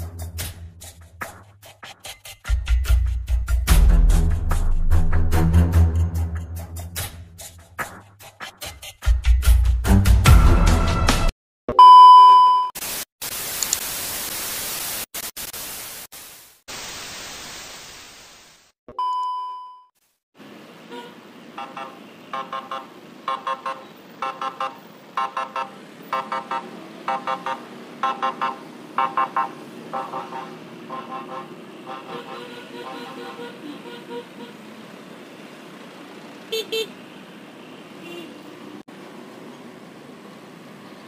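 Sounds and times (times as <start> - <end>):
short steady beep: 11.7 - 12.8, 18.9 - 19.9
static hiss: 12.8 - 18.7
motorbike and traffic rumble: 20.5 - 41.0
vehicle horns tooting: 20.9 - 34.7, 36.5 - 37.0, 38.0 - 38.4.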